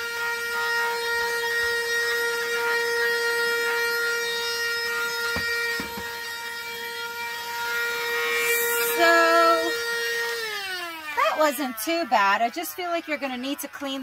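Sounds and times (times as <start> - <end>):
handheld vacuum whine and airflow: 0.0 - 14.0
light knocks: 5.3 - 6.1.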